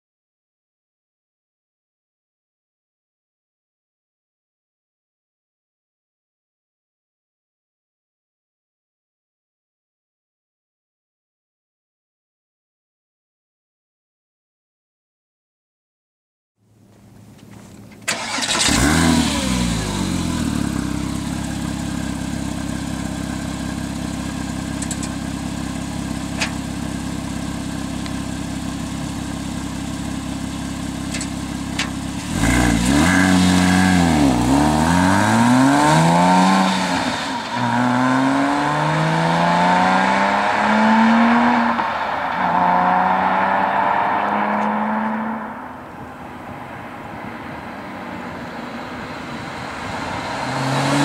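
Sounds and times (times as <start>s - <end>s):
sports car engine revving: 17.5s - 46.5s, 48.0s - 51.0s.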